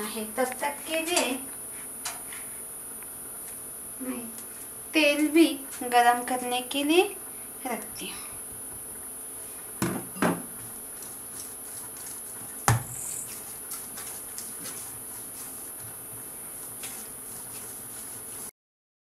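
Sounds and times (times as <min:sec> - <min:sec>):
steady high hiss: 0:00.0 - 0:09.8, 0:10.4 - 0:18.5
hands kneading dough: 0:10.5 - 0:18.5.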